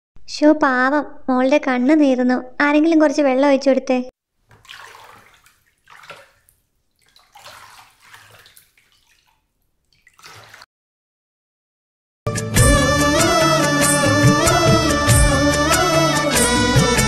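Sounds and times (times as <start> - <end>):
water splashing on concrete: 4.5 - 10.7.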